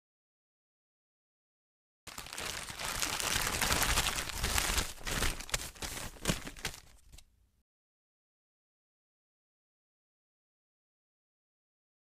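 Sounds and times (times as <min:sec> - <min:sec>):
plastic bag crinkling: 0:02.1 - 0:07.2.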